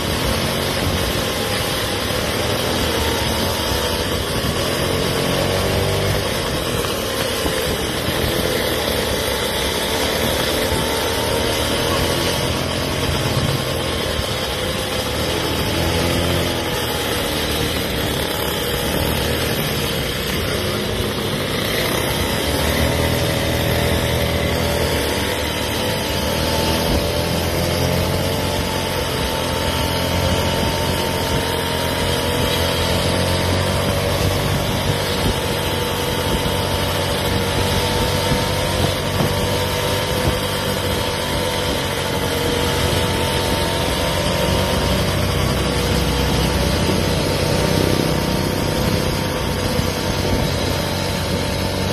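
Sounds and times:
road and wind noise: 0.0s - 51.9s
scooter motor drone: 0.0s - 51.9s.

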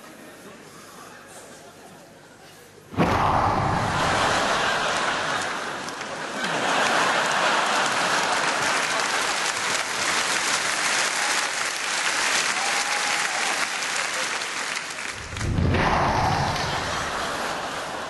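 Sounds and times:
audience applauding: 3.9s - 18.0s.

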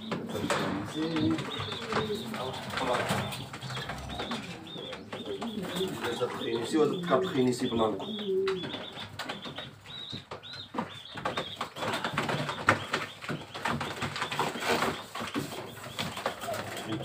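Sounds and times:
pigeon wings flapping: 0.0s - 6.2s, 10.7s - 17.0s.

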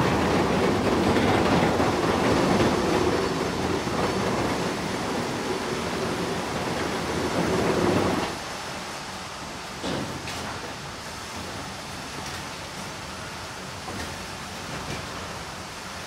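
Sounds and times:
sawmill machinery rattling rumble: 0.0s - 8.5s.

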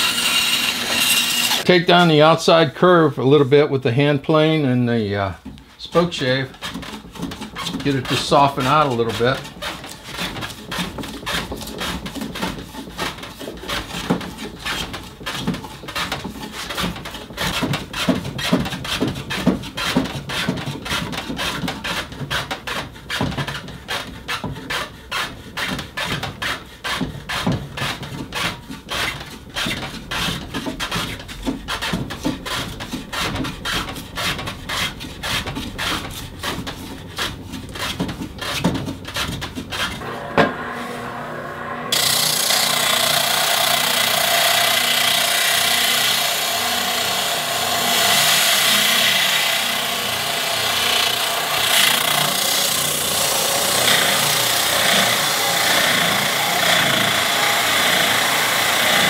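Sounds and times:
spindle sander running: 0.0s - 1.7s, 39.9s - 59.0s
spokeshave scraping wood: 0.0s - 59.0s.

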